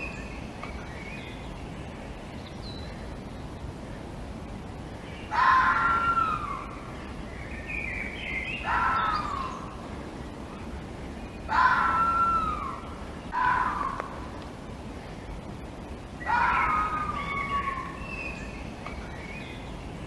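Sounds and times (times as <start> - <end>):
steady hiss: 0.0 - 20.0
fox calling: 5.2 - 7.0, 8.3 - 9.8, 11.4 - 14.4, 16.2 - 18.6.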